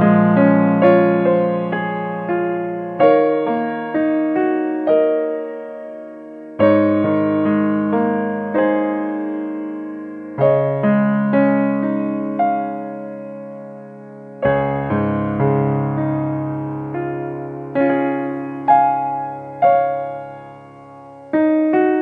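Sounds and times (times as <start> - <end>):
slow piano chords: 0.0 - 22.0.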